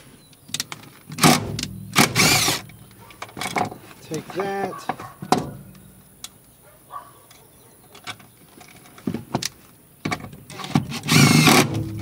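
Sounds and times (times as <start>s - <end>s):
hand tools clicking and rattling: 0.5s - 6.4s, 7.3s - 12.0s
cordless drill driving bolt: 1.1s - 3.7s, 10.5s - 12.0s.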